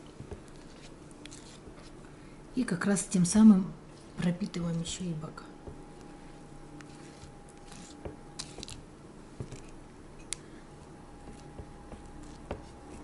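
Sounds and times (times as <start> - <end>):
faint steady hum: 0.0 - 13.0
spatula scraping frosting: 0.4 - 2.0, 6.8 - 8.8, 11.2 - 13.0.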